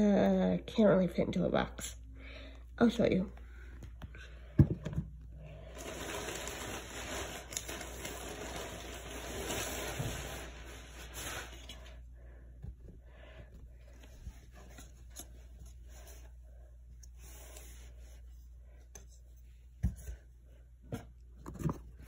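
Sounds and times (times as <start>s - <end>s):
plastic bag rustling: 5.6s - 12.0s.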